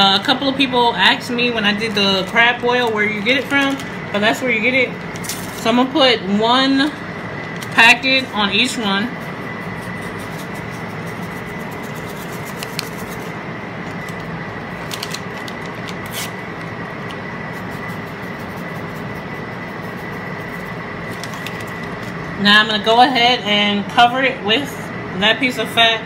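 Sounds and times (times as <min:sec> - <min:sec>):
constant high whine: 0:00.0 - 0:26.0
paper packet crinkling: 0:10.0 - 0:13.3, 0:13.9 - 0:16.7, 0:21.0 - 0:22.2.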